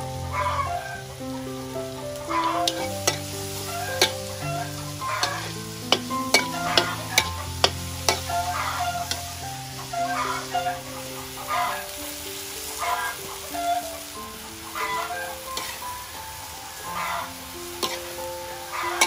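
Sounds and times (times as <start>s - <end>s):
meat sizzling: 0.0s - 19.0s
metal spatula scraping a wok: 2.4s - 9.2s, 15.6s - 15.8s, 17.8s - 18.2s.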